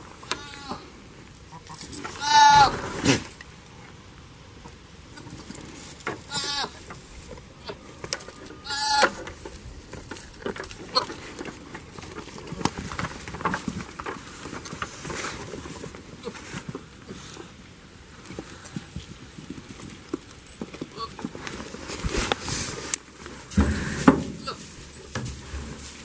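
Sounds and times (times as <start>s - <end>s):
goats bleating: 0.3s - 0.9s, 1.5s - 2.8s, 6.3s - 6.8s, 8.6s - 9.2s.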